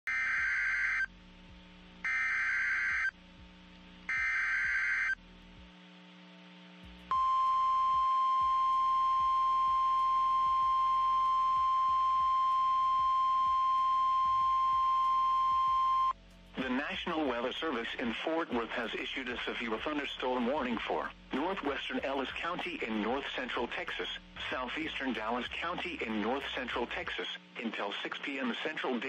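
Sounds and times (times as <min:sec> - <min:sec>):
buzzing data-header tones: 0:02.0 - 0:03.2, 0:04.1 - 0:05.2, 0:07.1 - 0:16.2.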